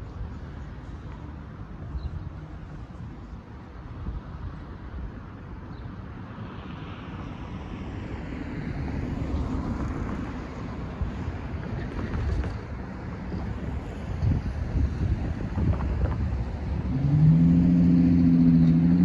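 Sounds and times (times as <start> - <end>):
cars driving past: 0.0 - 19.0
wind rumbling on microphone: 7.1 - 19.0.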